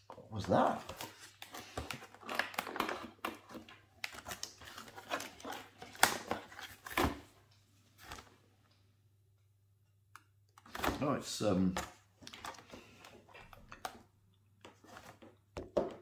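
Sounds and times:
cardboard and plastic crinkling: 0.4s - 7.3s.

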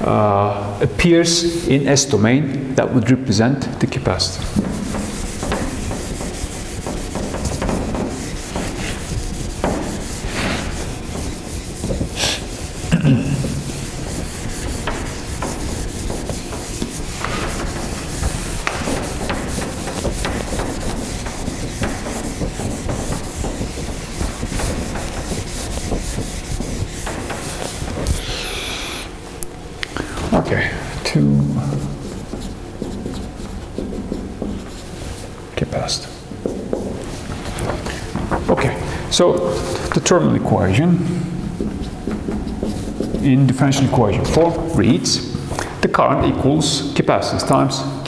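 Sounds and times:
eraser scrubbing whiteboard: 4.0s - 29.2s, 31.4s - 35.4s, 36.4s - 45.4s
eraser bumping board: 4.4s - 29.1s, 31.6s - 35.3s, 41.4s - 45.4s.

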